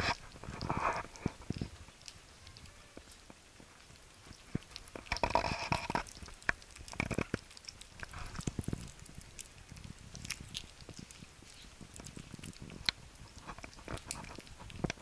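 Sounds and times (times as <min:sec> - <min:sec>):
kittens chewing and lapping food: 0:00.0 - 0:15.0.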